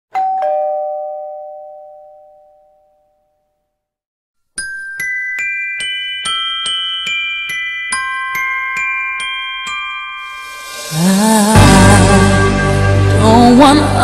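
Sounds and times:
bell-like music notes: 4.6 - 14.0.

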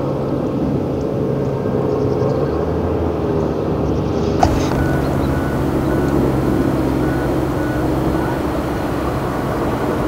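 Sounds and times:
diesel earthmoving machinery running: 4.4 - 10.0
faint short beeps: 4.4 - 10.0.

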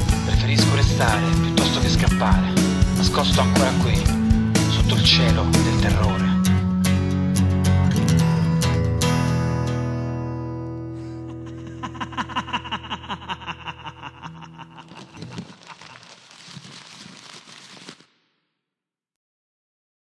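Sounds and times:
guitar and bass chord ringing: 0.0 - 11.5.

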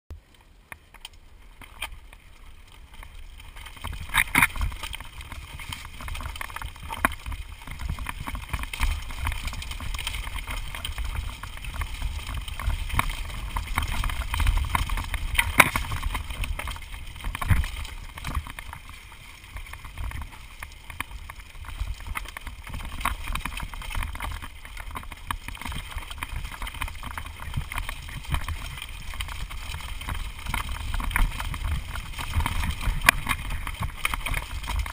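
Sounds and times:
wind rumbling on microphone: 0.8 - 34.9
bike clattering over stones: 0.9 - 34.9.

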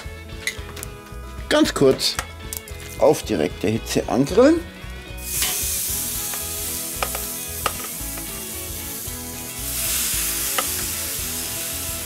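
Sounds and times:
chicken sizzling on a grill: 5.2 - 12.0.

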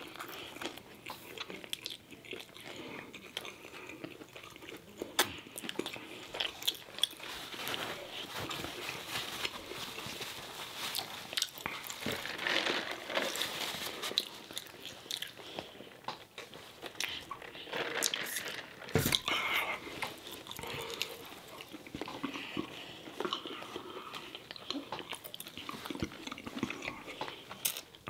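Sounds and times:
crunchy apple chewing: 0.0 - 28.0
paper napkin rustling: 7.2 - 14.6.

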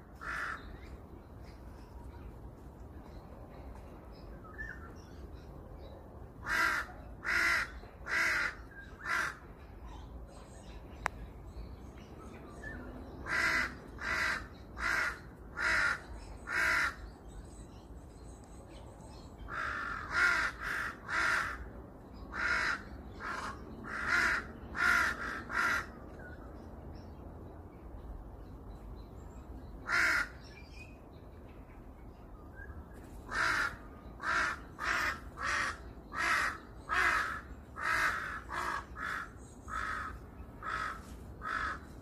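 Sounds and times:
crow cawing: 0.2 - 0.7, 6.4 - 9.4, 13.2 - 17.0, 19.5 - 21.7, 22.3 - 26.0, 29.8 - 30.4, 33.3 - 41.9.

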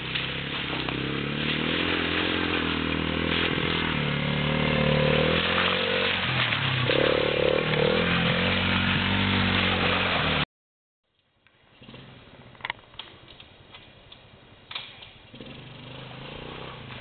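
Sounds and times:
small atv engine revving: 0.0 - 10.4, 11.8 - 12.3, 15.3 - 17.0.

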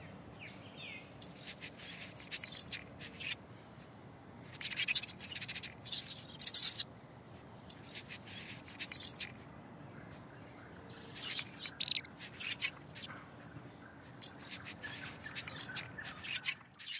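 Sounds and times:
mouse squeaks: 1.2 - 3.4, 4.5 - 6.8, 7.7 - 9.4, 11.2 - 13.1, 14.2 - 16.9.

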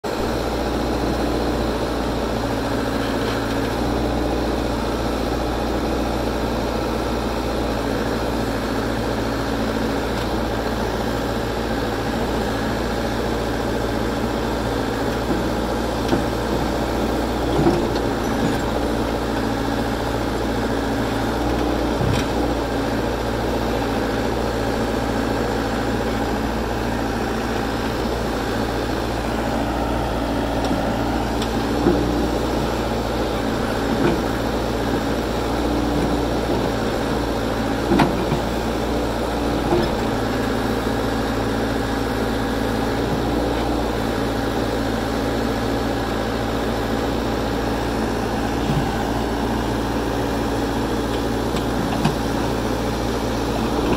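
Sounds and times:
diesel engine running: 0.0 - 53.9
short metal clunks: 37.8 - 38.6, 51.1 - 52.5.

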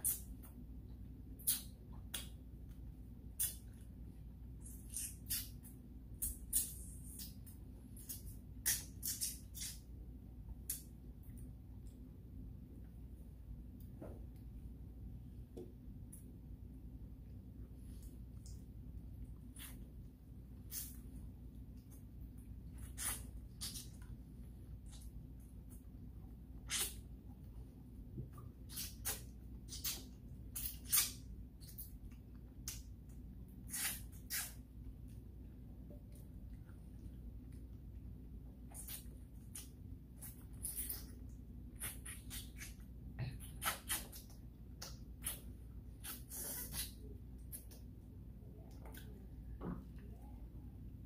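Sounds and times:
wet lip smacks while eating: 1.4 - 2.4, 3.4 - 3.8, 4.6 - 9.9, 28.3 - 32.9, 33.7 - 34.6, 38.7 - 47.9
wet mouth smacks: 1.4 - 2.4.

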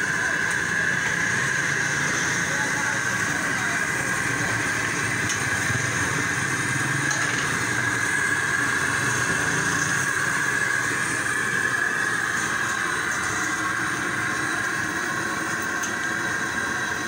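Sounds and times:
roadside traffic roar: 0.0 - 17.0.

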